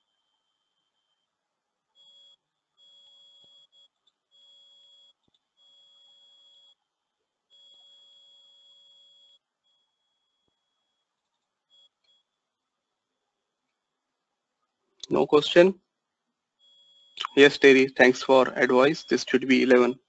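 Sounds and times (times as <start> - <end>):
faint high-pitched electronic tone: 0.0 - 14.0, 15.0 - 15.7, 16.6 - 20.0.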